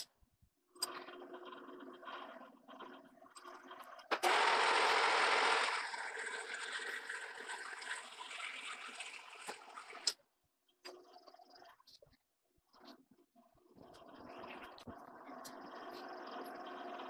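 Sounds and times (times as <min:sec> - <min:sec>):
metal lathe running: 0:04.2 - 0:07.7.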